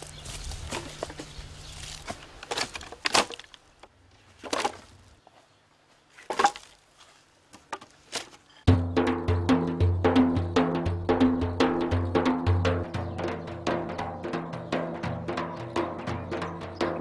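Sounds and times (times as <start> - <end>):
logs knocking onto woodpile: 2.0 - 3.6, 4.4 - 4.8, 6.2 - 6.8.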